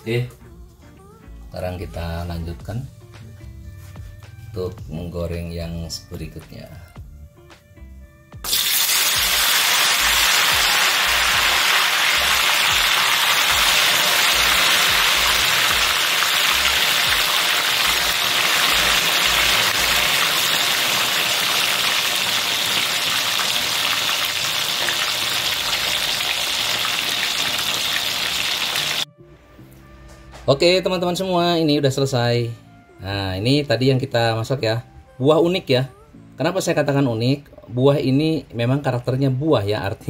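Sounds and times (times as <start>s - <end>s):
food sizzling in hot oil: 8.4s - 29.1s.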